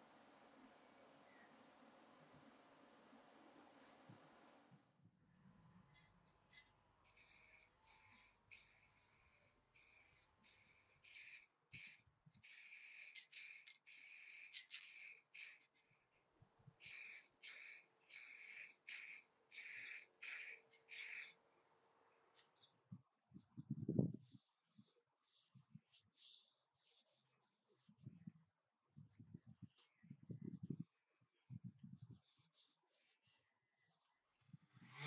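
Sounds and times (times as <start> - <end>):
spray paint can hissing: 6.0 - 16.0, 16.8 - 21.4.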